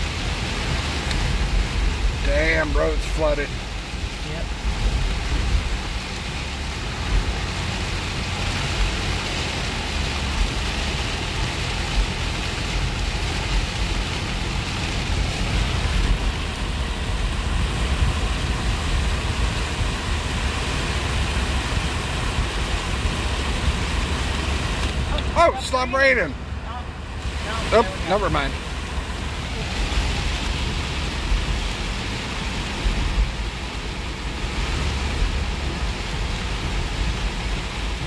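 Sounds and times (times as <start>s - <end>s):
low car rumble: 0.0s - 38.0s
rain on windshield: 0.0s - 38.0s.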